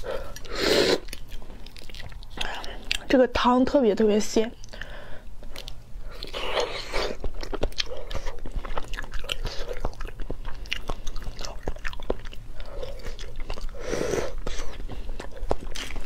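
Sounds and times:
biting and chewing egg: 5.5s - 16.0s.

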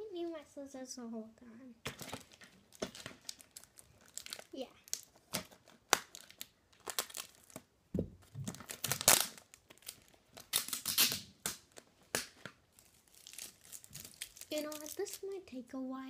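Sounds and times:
packaging crinkling and tearing: 1.8s - 15.4s
dull thump: 7.9s - 8.5s.

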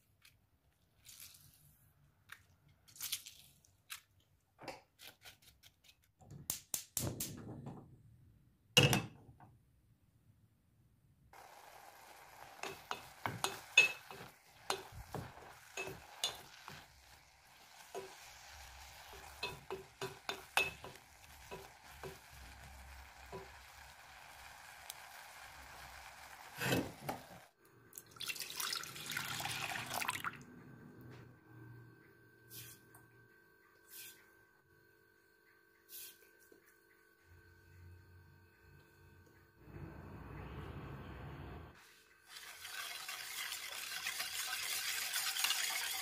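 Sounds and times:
cooking hiss: 11.4s - 27.6s
liquid being poured: 27.9s - 30.4s.

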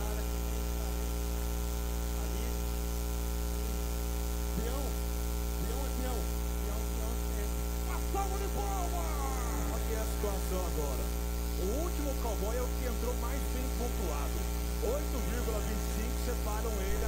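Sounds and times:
electrical mains hum: 0.0s - 17.0s
faint voices: 6.7s - 11.0s.

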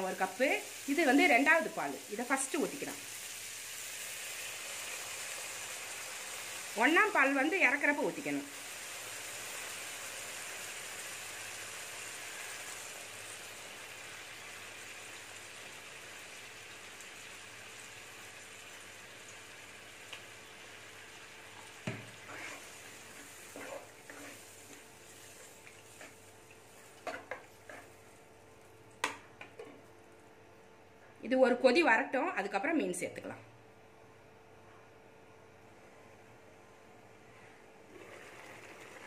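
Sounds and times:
liquid sizzling in a pan: 0.0s - 29.2s
ladle stirring and scraping a pan: 21.6s - 28.2s.

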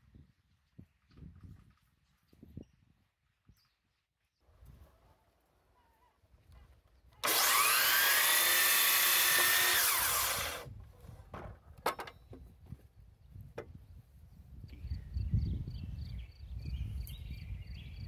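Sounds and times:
miter saw whining: 7.2s - 10.7s
saw blade cutting wood: 7.2s - 10.7s.

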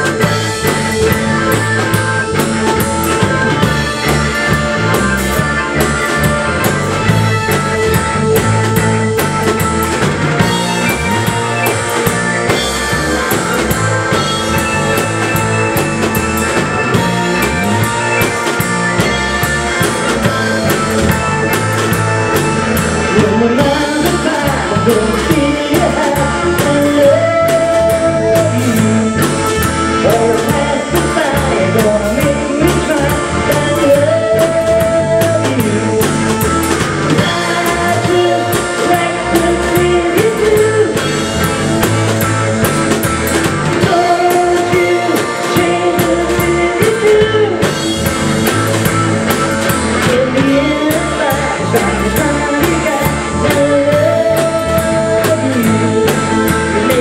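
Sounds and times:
live rock band playing: 0.0s - 57.0s
sliding held melody line: 0.0s - 57.0s.

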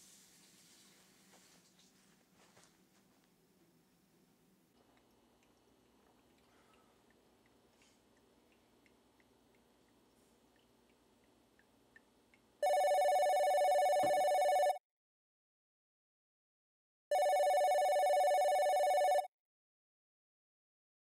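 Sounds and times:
telephone ringing: 12.6s - 14.8s, 17.1s - 19.3s.

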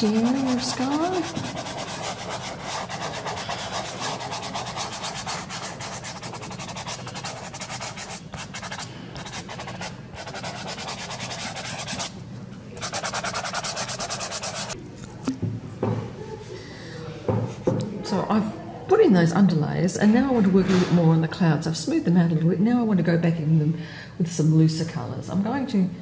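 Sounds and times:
hand rubbing pastel on paper: 0.0s - 12.1s, 12.8s - 14.8s.

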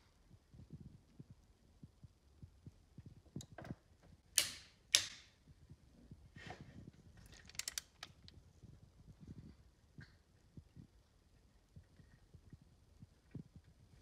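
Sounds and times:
torque wrench loud clicks: 4.4s - 5.2s.

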